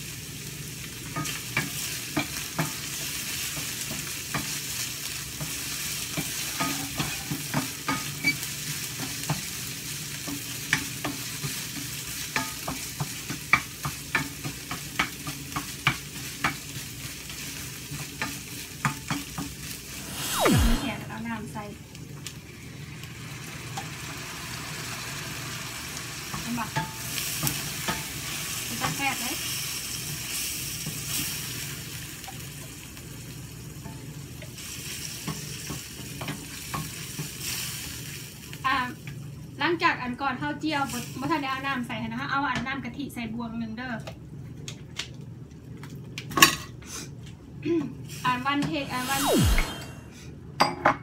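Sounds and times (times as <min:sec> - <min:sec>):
oil sizzling: 0:14.8 - 0:33.8.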